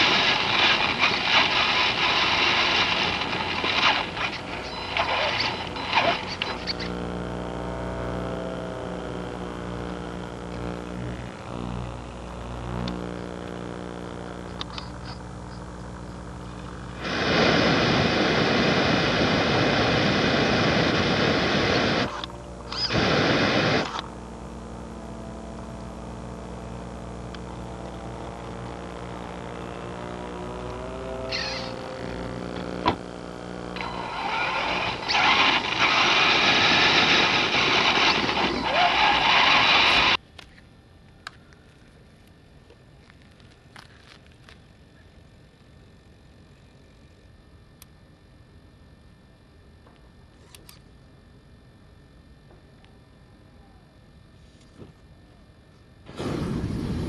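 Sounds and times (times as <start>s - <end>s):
loud hiss bursts: 0.0s - 6.3s, 33.8s - 40.2s, 56.1s - 57.0s
motor whine: 0.0s - 40.5s
electrical hum: 0.0s - 57.0s.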